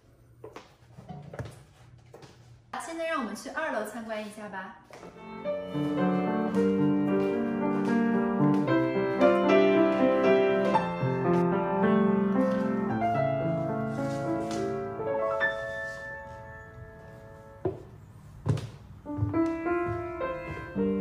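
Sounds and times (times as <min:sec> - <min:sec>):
piano music: 0:05.1 - 0:18.4, 0:19.0 - 0:21.0.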